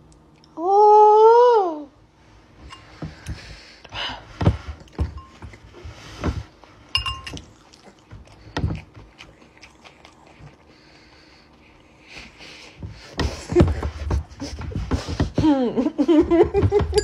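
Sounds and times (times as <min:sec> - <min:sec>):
chewing and eating: 0:00.0 - 0:00.6, 0:04.6 - 0:13.2
metal spoon clinking on glass bowl: 0:07.0 - 0:07.4.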